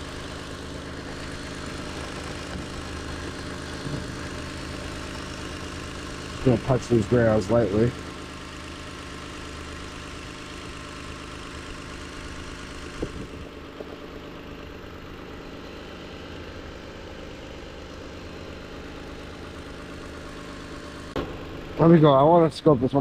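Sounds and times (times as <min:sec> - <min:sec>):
car engine idling: 0:00.0 - 0:23.0
brief engine knock: 0:12.9 - 0:14.2.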